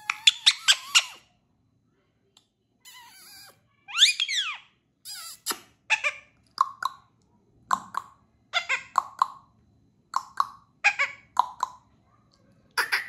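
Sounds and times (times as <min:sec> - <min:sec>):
parakeet sharp calls: 0:00.0 - 0:01.2.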